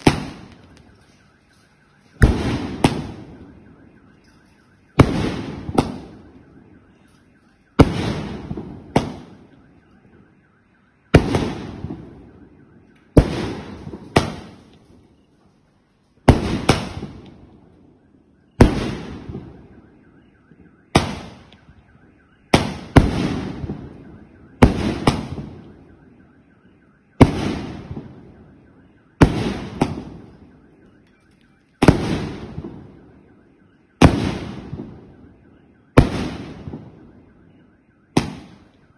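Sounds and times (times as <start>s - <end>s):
firework bangs: 0.0s - 1.0s, 2.2s - 3.8s, 4.9s - 6.4s, 7.8s - 9.6s, 11.1s - 12.5s, 13.1s - 15.0s, 16.2s - 17.6s, 18.6s - 19.8s, 20.9s - 21.7s, 22.5s - 25.7s, 27.2s - 28.4s, 29.2s - 30.5s, 31.8s - 33.0s, 34.0s - 35.2s, 35.9s - 37.2s, 38.1s - 38.7s
faint steady tone: 0.0s - 38.9s.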